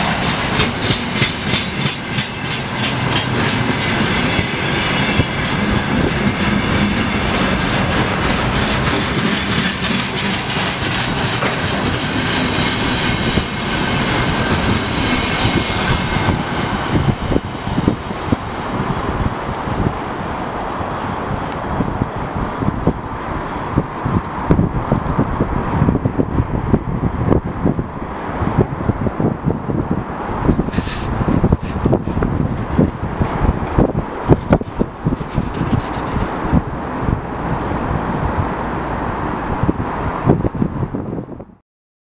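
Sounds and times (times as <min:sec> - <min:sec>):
clickety-clack over rail joints: 0:00.0 - 0:27.4, 0:29.9 - 0:40.7
freight train wheels rumbling: 0:00.0 - 0:41.6.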